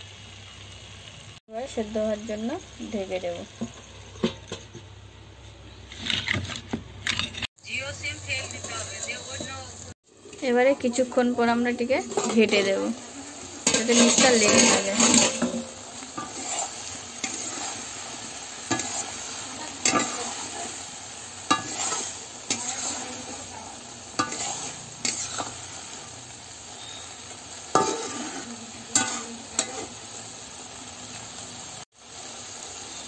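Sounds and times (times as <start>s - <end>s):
curry sizzling in a pan: 0.0s - 6.3s, 7.2s - 33.0s
spatula scraping and knocking pan: 3.4s - 5.0s, 5.8s - 7.5s, 12.0s - 12.9s, 13.6s - 17.9s, 18.6s - 20.7s, 21.4s - 25.6s, 27.7s - 30.0s.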